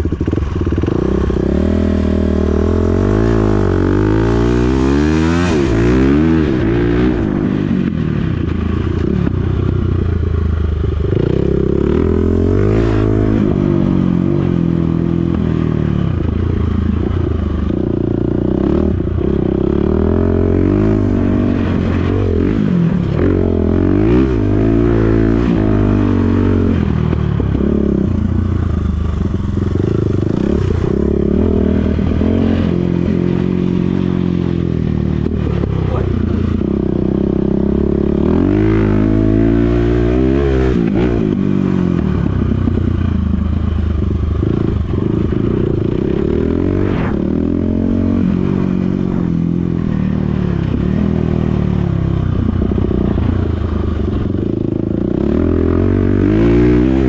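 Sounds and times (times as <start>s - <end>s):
dirt bike engine revving: 0.0s - 9.3s, 11.0s - 43.5s, 44.4s - 57.0s.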